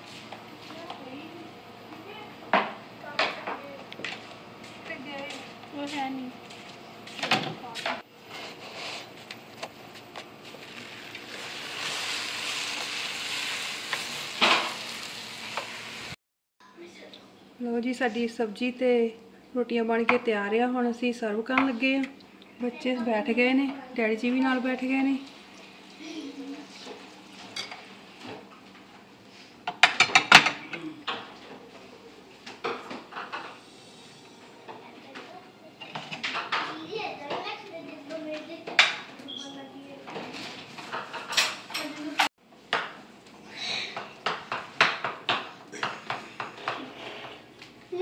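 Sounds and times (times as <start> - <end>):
spatula scrape: 8.3 - 9.2, 46.6 - 47.5
food sizzling in a frying pan: 10.6 - 16.2.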